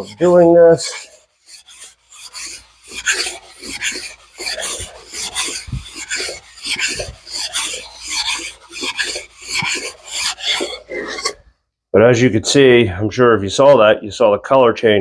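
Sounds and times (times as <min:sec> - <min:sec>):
sandpaper rasping on metal: 0:00.0 - 0:11.4.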